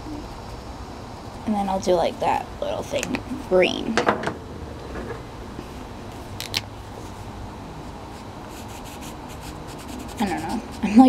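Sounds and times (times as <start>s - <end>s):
steady low rumble: 0.0s - 10.0s
marker scratching on paper: 8.1s - 11.0s.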